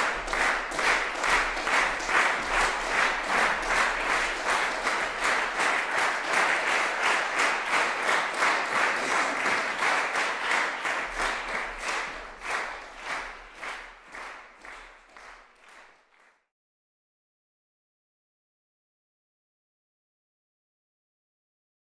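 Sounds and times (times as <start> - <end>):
audience applauding: 0.0 - 16.4.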